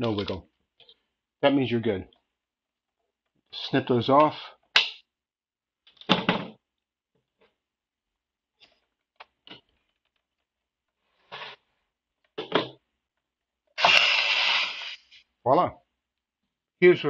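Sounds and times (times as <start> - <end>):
gas hissing: 13.8 - 15.2.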